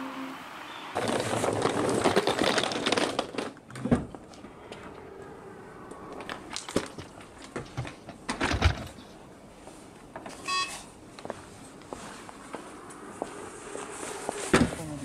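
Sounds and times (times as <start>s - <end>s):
short electronic beep: 10.4s - 10.8s.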